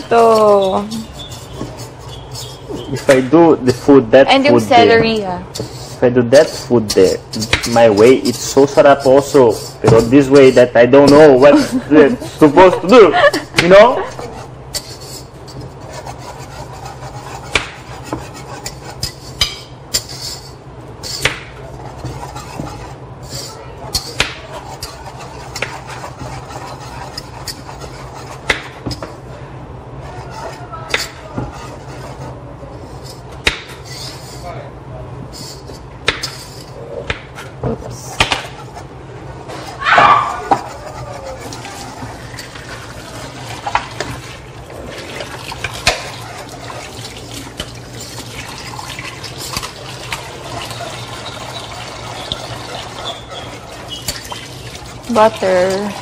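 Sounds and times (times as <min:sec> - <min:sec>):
utensil stirring in metal pot: 0:00.0 - 0:34.6, 0:35.3 - 0:56.0
steady low hum: 0:00.0 - 0:56.0
knife chopping on cutting board: 0:17.2 - 0:18.8, 0:24.0 - 0:29.1, 0:33.4 - 0:33.8, 0:36.0 - 0:36.4, 0:38.1 - 0:38.6
steady watery hiss: 0:40.7 - 0:56.0
utensil clinking against pot: 0:45.5 - 0:56.0.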